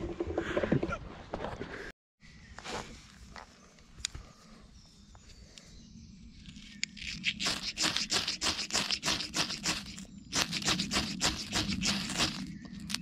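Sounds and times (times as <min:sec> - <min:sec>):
ferro rod scraped with striker: 0:06.9 - 0:13.0.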